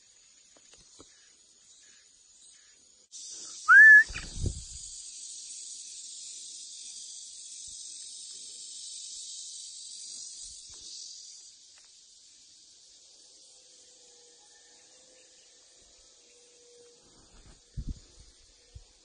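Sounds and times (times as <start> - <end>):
high-pitched insect drone: 1.8 - 19.0
loud rising whistle: 3.7 - 4.4.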